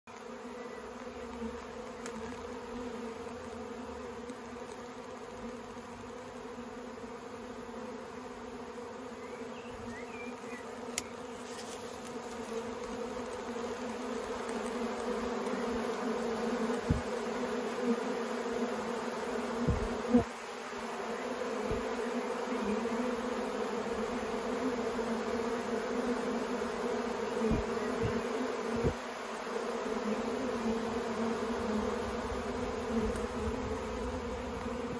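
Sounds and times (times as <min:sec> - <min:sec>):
bees buzzing: 0:00.1 - 0:34.9.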